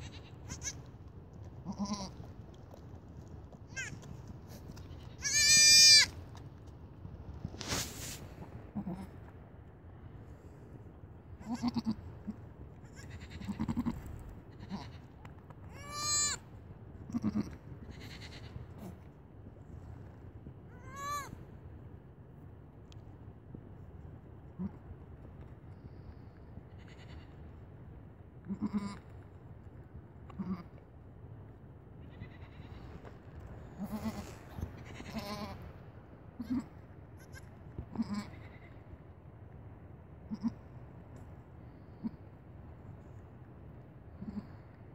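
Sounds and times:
goat bleats with quaver: 0.0 - 0.8, 1.7 - 2.2, 5.0 - 6.1, 11.4 - 12.0, 12.8 - 14.0, 14.6 - 15.0, 15.7 - 16.4, 17.1 - 19.0, 20.7 - 21.3, 28.4 - 29.1, 30.3 - 30.7, 32.0 - 32.9, 33.7 - 35.6, 36.4 - 38.8, 40.3 - 40.6, 42.0 - 42.2, 44.2 - 44.6
goats calling: 3.7 - 6.2
kid high bleat: 5.2 - 6.1, 11.4 - 12.0, 15.7 - 16.4, 20.7 - 21.4, 33.8 - 35.6, 36.4 - 38.7
goat low calls: 11.4 - 15.0, 28.4 - 29.1, 33.7 - 35.6, 36.4 - 38.8, 42.0 - 42.2, 44.2 - 44.7.

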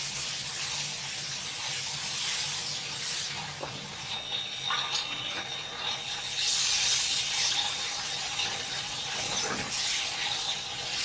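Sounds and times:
batter sizzling on a griddle: 0.0 - 11.0.

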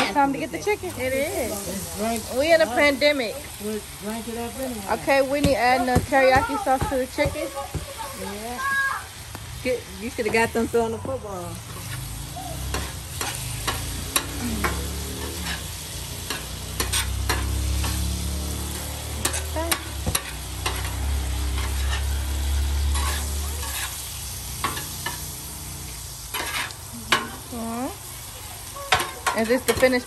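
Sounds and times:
chicken sizzling on griddle: 0.0 - 30.0
metal spatula scraping griddle: 11.6 - 27.7, 28.9 - 30.0.

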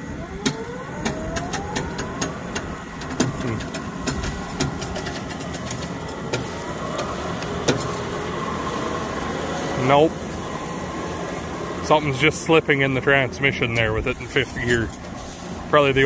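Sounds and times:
tow vehicle engine pulling: 0.0 - 16.0
clicks and knocks from dragged tractor: 1.0 - 8.0.

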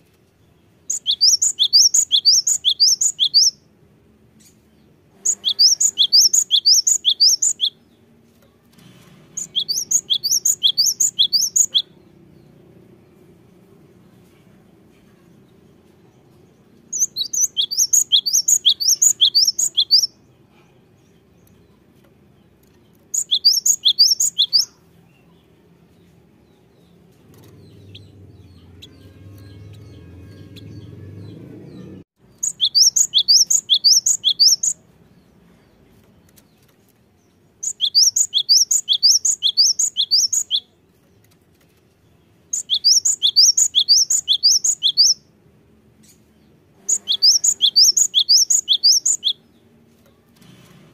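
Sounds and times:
bird singing high whistled notes: 0.9 - 3.6, 5.2 - 7.8, 9.4 - 12.0, 16.9 - 20.2, 23.1 - 24.8, 32.4 - 34.8, 37.6 - 40.7, 42.5 - 45.3, 46.9 - 49.5
faint low rumble: 25.0 - 32.1.

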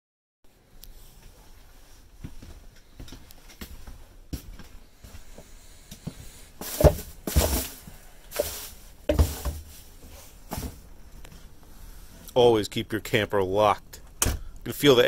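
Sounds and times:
footsteps: 1.0 - 11.5
scuffing and rustling: 1.0 - 11.6.

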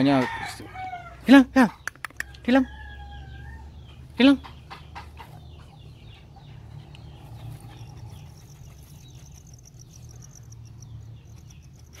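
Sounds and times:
steady low hum: 6.6 - 12.0
insect chirping: 7.3 - 12.0.

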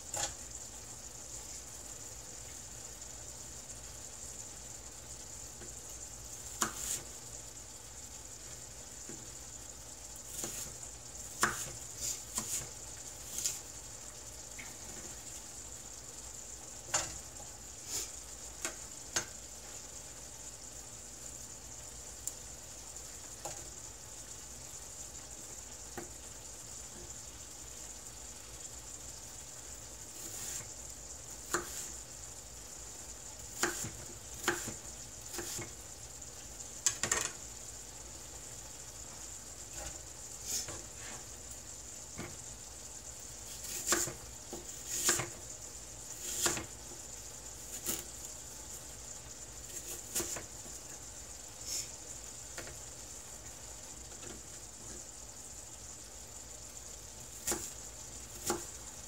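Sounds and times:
apples sizzling in skillet: 0.0 - 59.0.

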